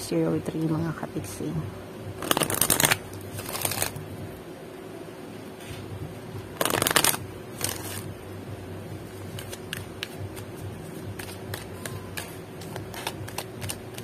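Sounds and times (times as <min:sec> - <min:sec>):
cards riffle shuffled: 0:02.2 - 0:04.0, 0:06.6 - 0:08.1, 0:09.1 - 0:14.0
clicks and taps of cards: 0:09.3 - 0:10.5.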